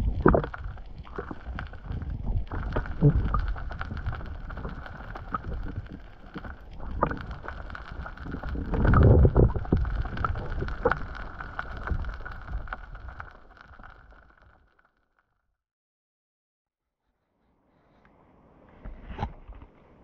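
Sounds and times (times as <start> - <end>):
underwater rush of water: 0.0 - 14.3.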